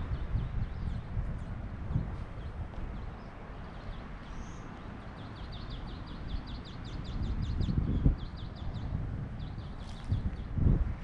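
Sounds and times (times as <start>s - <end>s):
small bird calling: 2.3s - 10.5s.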